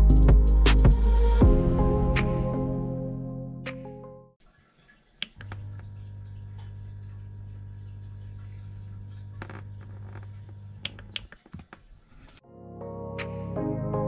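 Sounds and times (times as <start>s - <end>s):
music: 0.0s - 4.4s, 12.4s - 14.0s
air pump humming: 5.2s - 12.4s.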